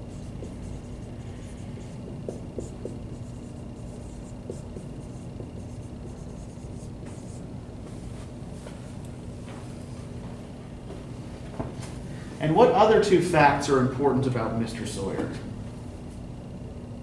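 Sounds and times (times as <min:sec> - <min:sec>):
marker scratching on whiteboard: 0:00.0 - 0:07.4
low room hum: 0:00.0 - 0:17.0.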